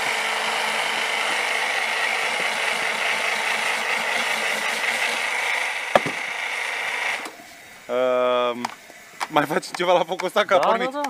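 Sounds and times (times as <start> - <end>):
immersion blender running: 0.0 - 7.9.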